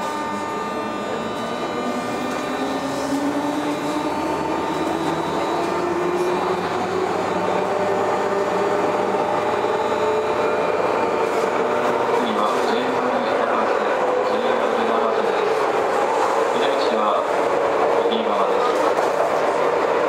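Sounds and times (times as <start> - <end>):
high electric whine: 0.0 - 13.4
electric train accelerating: 0.0 - 20.0.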